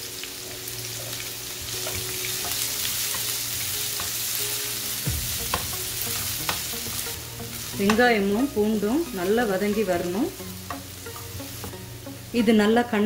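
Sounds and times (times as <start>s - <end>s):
onion sizzling in oil: 0.0s - 13.0s
spatula knocking pan: 4.9s - 7.0s.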